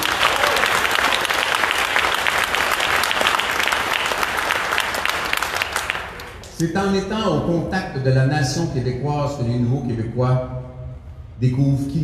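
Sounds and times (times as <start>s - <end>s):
audience applauding: 0.0s - 6.5s.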